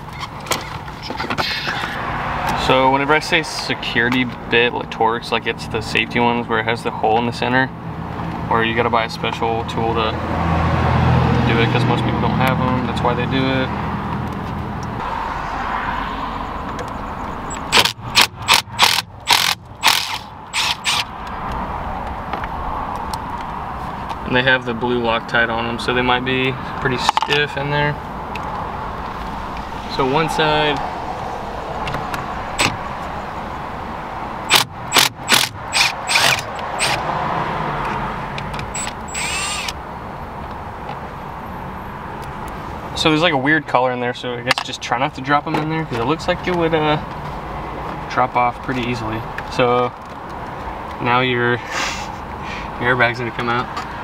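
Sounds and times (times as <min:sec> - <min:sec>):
impact driver bursts: 0:17.6 - 0:21.1, 0:34.5 - 0:37.0, 0:38.7 - 0:39.8.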